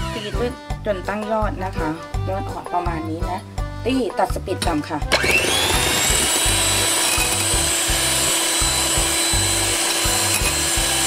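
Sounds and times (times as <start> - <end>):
electric hand mixer whipping: 5.1 - 11.0.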